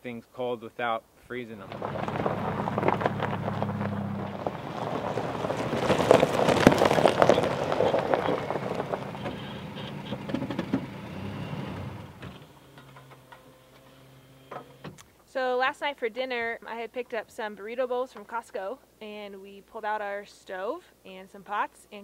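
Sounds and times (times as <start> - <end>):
tyres crunching over gravel: 1.6 - 13.8
pickup engine running: 1.6 - 15.0.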